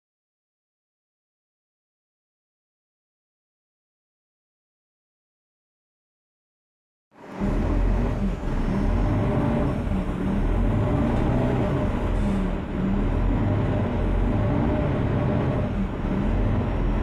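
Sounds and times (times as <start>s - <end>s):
bus diesel engine rumbling: 7.2s - 17.0s.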